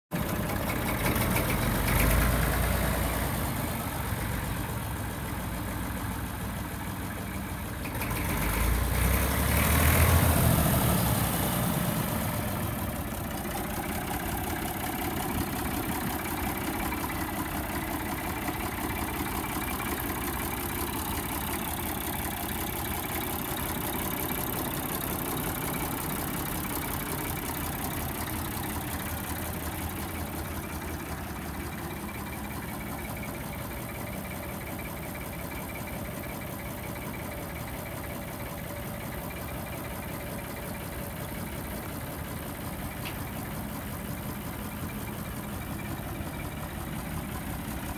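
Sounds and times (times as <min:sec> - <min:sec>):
tractor diesel engine running: 0:00.1 - 0:47.9.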